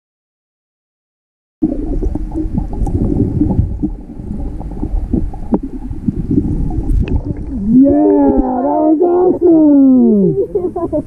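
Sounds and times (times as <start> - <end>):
low underwater rumble: 1.6 - 11.0
underwater clicks and pops: 2.0 - 3.9, 4.8 - 8.5.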